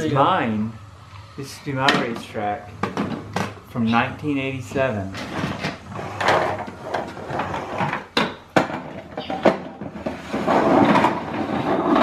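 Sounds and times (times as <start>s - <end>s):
plastic toys clattering: 5.1s - 12.0s.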